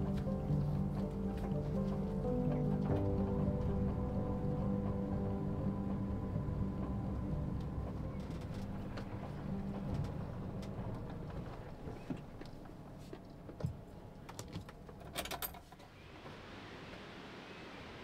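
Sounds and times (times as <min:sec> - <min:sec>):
van engine and road noise rumble: 0:00.0 - 0:17.6.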